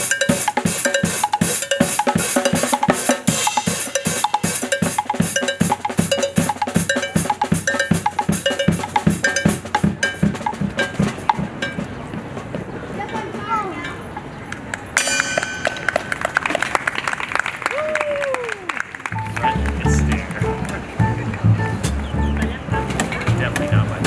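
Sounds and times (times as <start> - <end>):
clanking cowbell-like hits: 0.0 - 12.0, 15.0 - 16.7
drum kit fast rhythm: 0.0 - 12.1.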